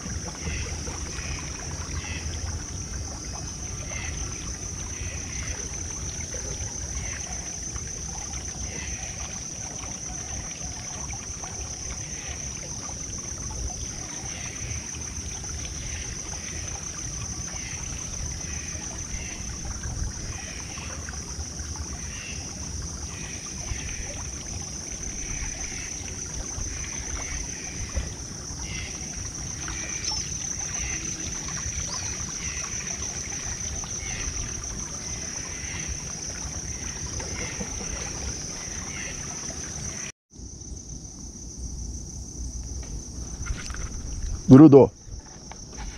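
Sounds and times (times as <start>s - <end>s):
wind on microphone: 42.9s - 45.9s.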